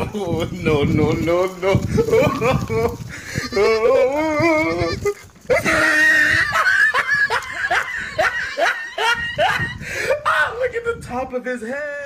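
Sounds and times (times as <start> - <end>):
goat bleating: 1.7 - 6.6
person laughing: 1.8 - 10.6.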